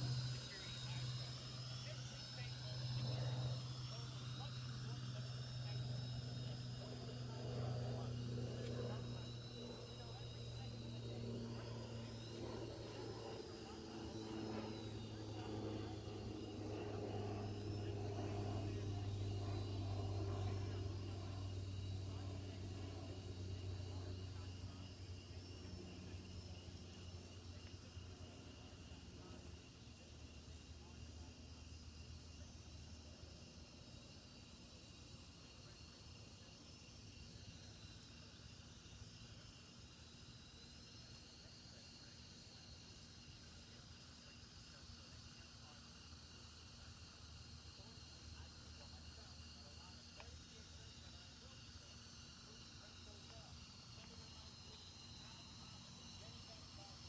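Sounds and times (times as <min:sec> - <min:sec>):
drone humming: 0:00.0 - 0:23.8
crickets chirping: 0:00.0 - 0:57.0.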